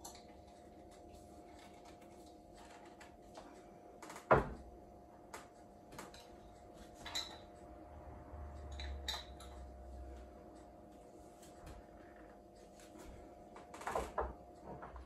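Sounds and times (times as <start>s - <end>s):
glass jars clinking: 8.7s - 9.5s.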